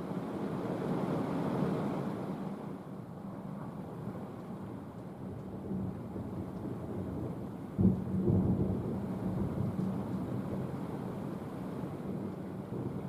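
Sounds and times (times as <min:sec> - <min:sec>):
thunder rumbling: 0:05.4 - 0:13.0.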